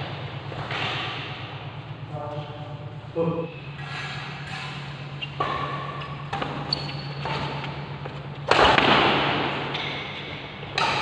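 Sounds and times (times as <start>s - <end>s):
low hum: 0.0s - 11.0s
rackets hitting shuttlecock: 0.6s - 1.5s, 5.3s - 11.0s.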